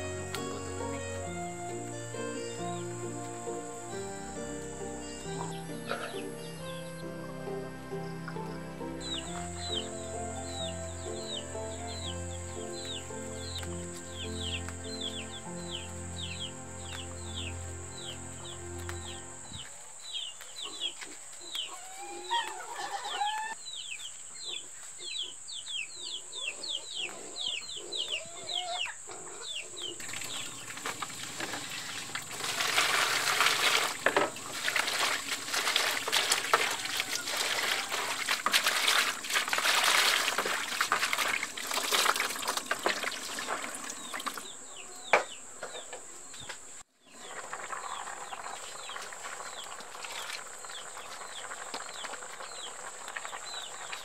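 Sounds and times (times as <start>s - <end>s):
birds chirping: 0.0s - 54.0s
water pouring into a basin: 30.0s - 44.5s, 47.1s - 54.0s.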